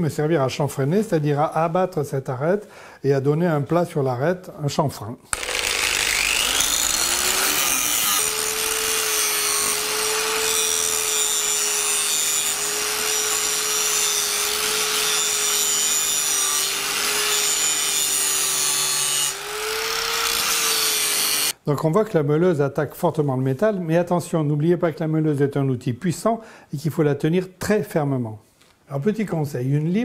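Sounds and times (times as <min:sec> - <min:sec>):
angle grinder grinding steel: 0:05.3 - 0:21.6.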